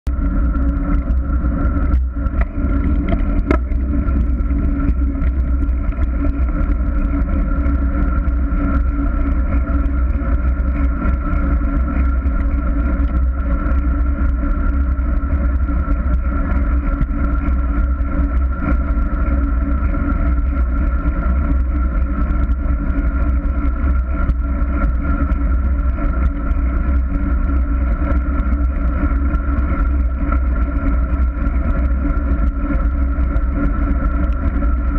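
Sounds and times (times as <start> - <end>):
steady hum: 0.0 - 34.9
wind buffeting microphone: 0.1 - 21.6.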